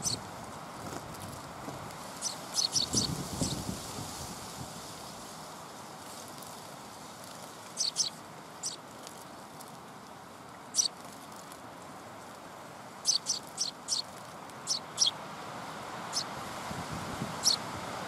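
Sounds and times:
songbirds chirping: 0:00.0 - 0:00.3, 0:02.1 - 0:03.6, 0:07.6 - 0:09.5, 0:10.6 - 0:11.2, 0:13.0 - 0:15.2, 0:16.0 - 0:16.4
steady background hiss: 0:00.0 - 0:18.0.

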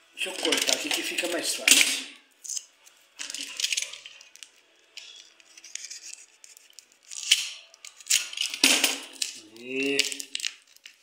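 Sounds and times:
plastic bag crinkling: 0:03.2 - 0:11.0.

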